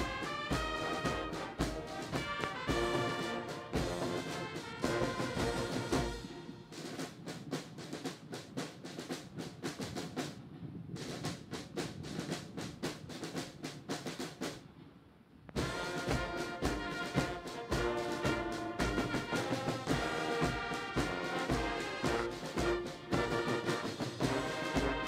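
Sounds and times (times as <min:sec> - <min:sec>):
brass band playing: 0:00.0 - 0:07.2, 0:15.6 - 0:25.0
military drums beating: 0:00.0 - 0:14.7, 0:15.6 - 0:25.0.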